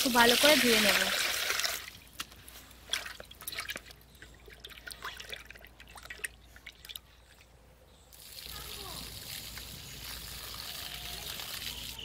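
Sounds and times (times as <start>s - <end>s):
water pouring: 0.0s - 2.1s, 8.2s - 12.0s
water splashing and dripping in basin: 0.0s - 12.0s.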